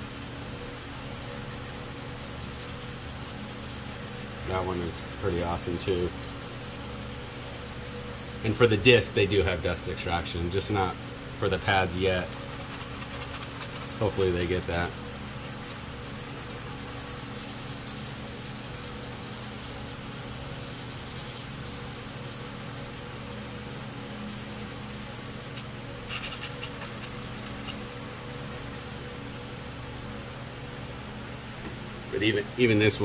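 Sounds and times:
sandpaper scratching on plastic: 0.0s - 8.5s, 12.2s - 29.0s.

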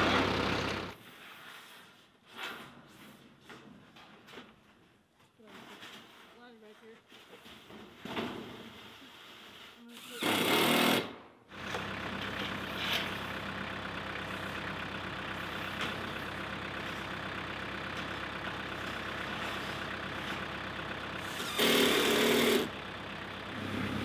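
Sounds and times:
machine running noise: 0.0s - 1.0s, 10.2s - 24.0s.

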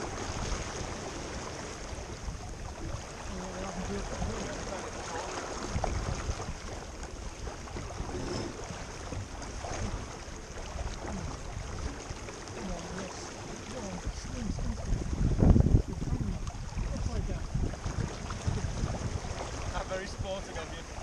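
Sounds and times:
water washing against boat hull: 0.0s - 21.0s
wind rushing over microphone: 5.6s - 6.8s, 14.0s - 21.0s.

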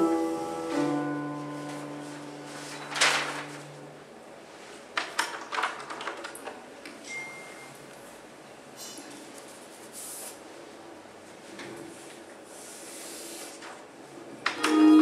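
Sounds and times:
held low music notes: 0.0s - 3.9s, 14.6s - 15.0s.

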